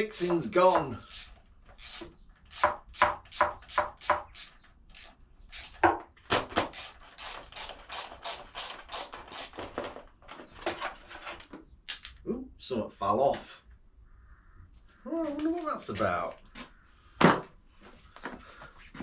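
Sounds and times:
ratchet spanner rasping: 0:01.0 - 0:05.8.

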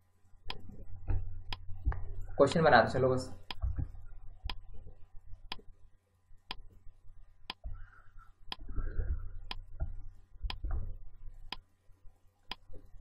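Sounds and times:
faint low room noise: 0:00.0 - 0:13.0
timer ticking: 0:03.4 - 0:04.7, 0:06.5 - 0:06.8, 0:08.5 - 0:11.6.

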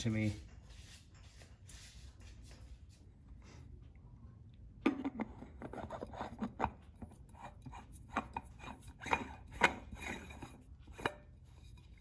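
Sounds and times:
oil filter being screwed on: 0:05.0 - 0:12.0.

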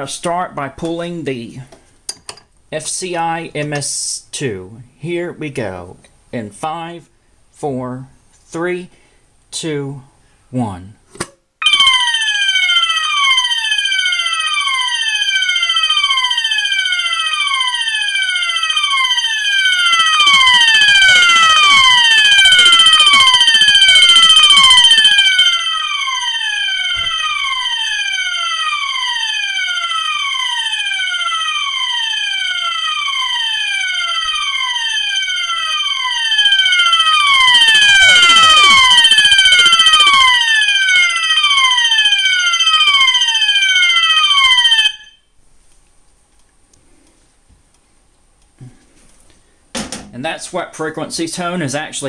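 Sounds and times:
alarm horn falling sweep tone: 0:11.6 - 0:45.2.

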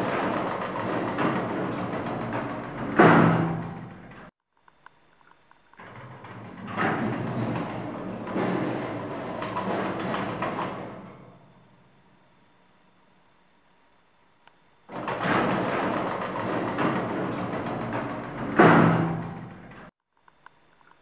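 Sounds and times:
elevator doors clunk: 0:00.0 - 0:04.3, 0:05.8 - 0:11.9, 0:14.9 - 0:19.9
sliding metal elevator doors: 0:00.0 - 0:04.3, 0:05.8 - 0:12.0, 0:14.9 - 0:19.9.

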